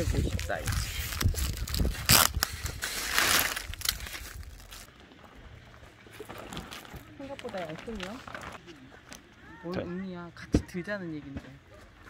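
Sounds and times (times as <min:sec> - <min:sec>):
plastic sheet crinkling: 0:00.0 - 0:04.9.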